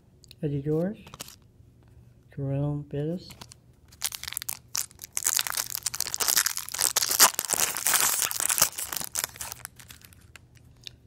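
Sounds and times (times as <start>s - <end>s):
foil wrapper crinkling and tearing: 3.4s - 10.5s.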